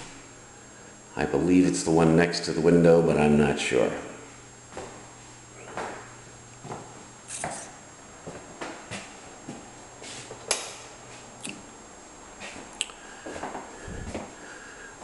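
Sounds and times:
low steady hum: 0:00.0 - 0:15.0
footsteps on hardwood floor: 0:04.7 - 0:05.0, 0:06.6 - 0:07.6, 0:08.2 - 0:10.3.

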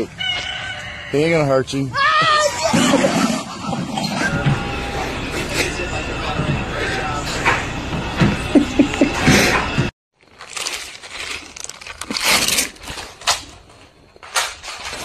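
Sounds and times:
plastic bag crinkling: 0:10.2 - 0:15.0.

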